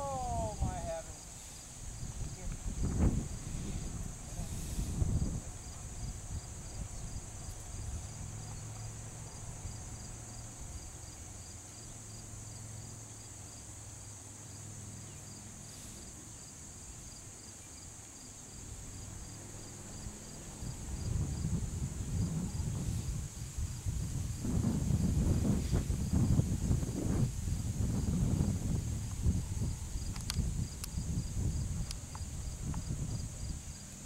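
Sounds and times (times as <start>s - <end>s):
wind noise on microphone: 0.0s - 8.5s, 20.0s - 34.0s
cricket chirping: 0.0s - 34.0s
insects buzzing: 0.0s - 34.0s.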